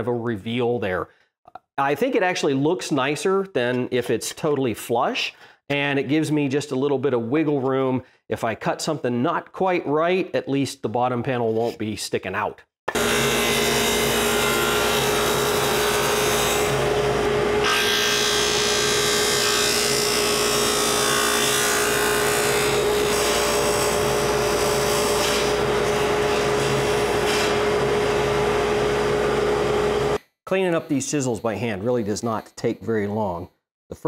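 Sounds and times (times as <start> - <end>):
table saw cutting plywood: 12.9 - 30.2.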